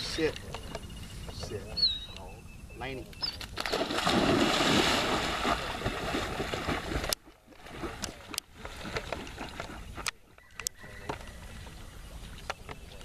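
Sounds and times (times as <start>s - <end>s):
quiet water sounds: 0.0s - 13.0s
dog splashing into water: 3.6s - 9.8s.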